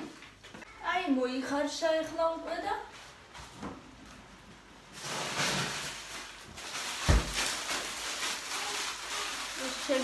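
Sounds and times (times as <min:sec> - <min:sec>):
rustling and handling noises: 0:02.8 - 0:10.0.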